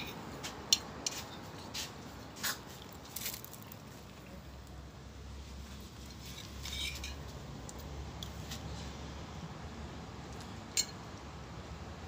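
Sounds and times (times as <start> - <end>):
metal spoon scraping in bowl: 6.0 - 7.2.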